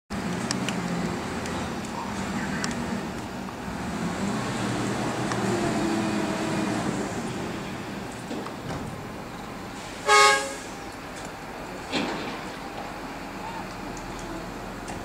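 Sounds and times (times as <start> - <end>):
engine rumbling: 0.1 - 15.0
vehicle horn toot: 10.0 - 10.7.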